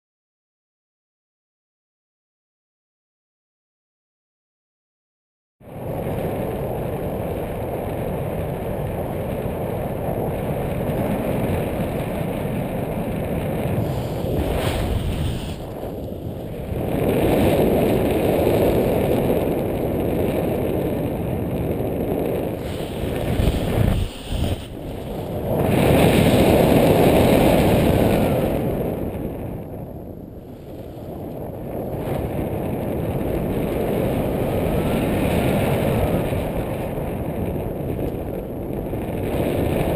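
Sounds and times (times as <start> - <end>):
wind rushing over microphone: 5.6 - 39.9.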